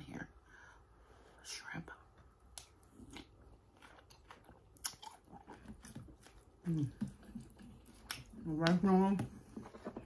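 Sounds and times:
person chewing wetly: 2.4 - 8.4.

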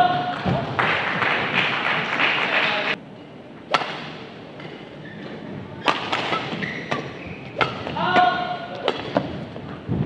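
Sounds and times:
racket hitting shuttlecock: 3.7 - 4.8, 5.8 - 9.4.

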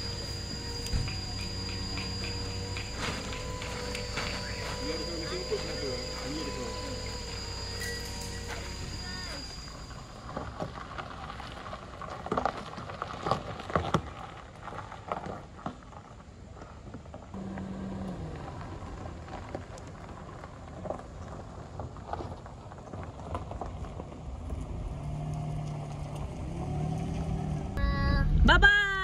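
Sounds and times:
car engine humming: 0.0 - 15.2, 17.1 - 22.2, 22.8 - 29.0
tyres crunching over gravel: 0.0 - 27.6.

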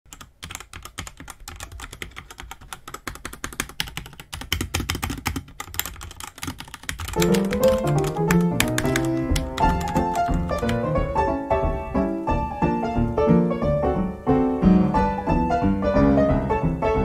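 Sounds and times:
mechanical keyboard typing: 0.1 - 11.0
background piano music: 7.0 - 17.0.

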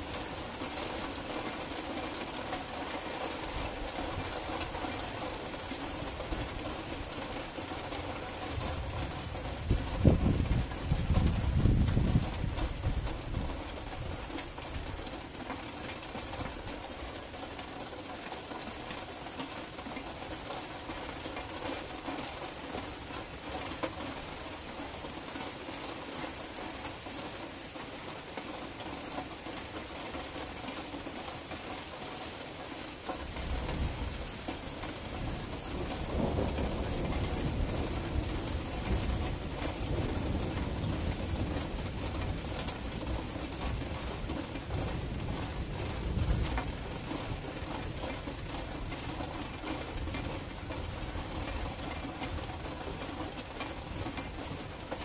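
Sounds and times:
rain hissing: 0.0 - 55.0
thunder rumbling: 35.0 - 43.0.

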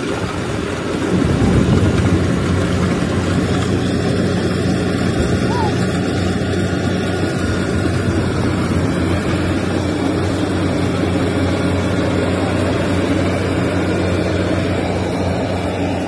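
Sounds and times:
combine harvester engine droning: 0.0 - 16.0.

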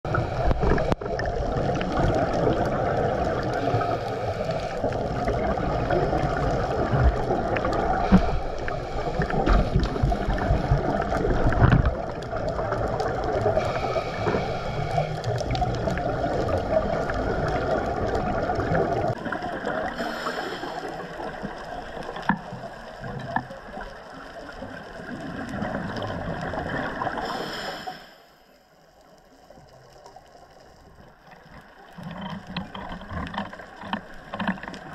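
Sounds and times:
gurgling bubbles: 0.1 - 27.4
underwater rush of water: 0.1 - 34.9.

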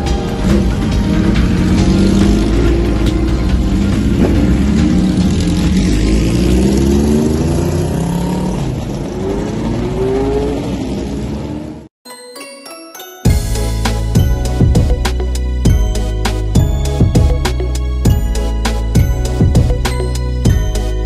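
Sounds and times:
motorcycles revving and accelerating: 0.0 - 11.9.

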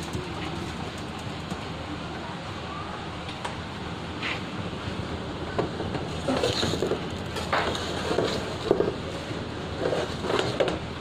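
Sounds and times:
metal baking tray scraping and clanking: 6.1 - 10.8.

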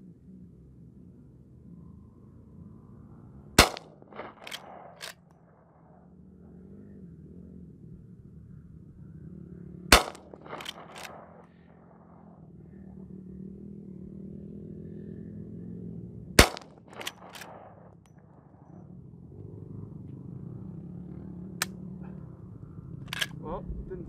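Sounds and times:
rifle lever clacking: 3.6 - 5.2, 10.0 - 11.3, 16.4 - 17.7, 23.1 - 23.4
rifle shots: 3.6 - 6.0, 9.9 - 12.3, 16.4 - 18.0.

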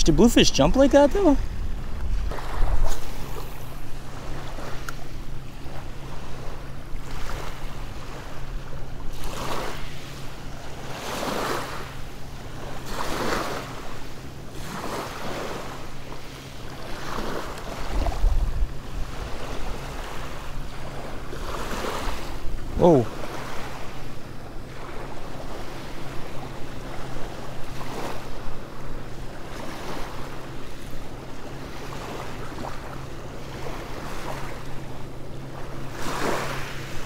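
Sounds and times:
wind buffeting microphone: 0.0 - 4.9, 17.8 - 21.4
small waves lapping on gravel beach: 9.1 - 18.2, 19.1 - 24.0, 35.5 - 37.0.

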